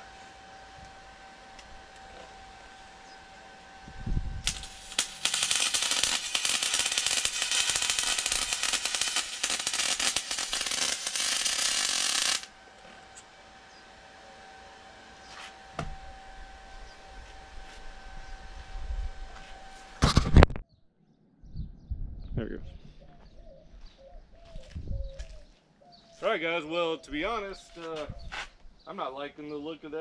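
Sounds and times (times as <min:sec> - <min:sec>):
welder arc crackling: 0:04.4 - 0:12.9.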